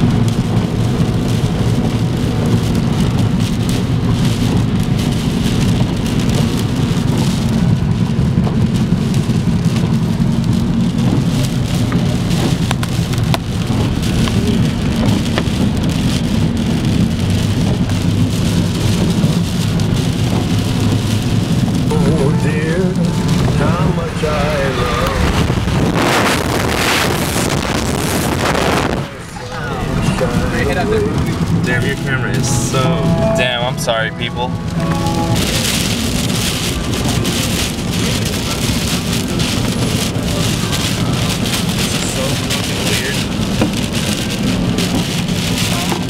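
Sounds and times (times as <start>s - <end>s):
raindrop clicks: 0.0s - 21.9s, 34.6s - 46.0s
low road rumble: 0.0s - 46.0s
rain and spray hiss: 0.0s - 46.0s.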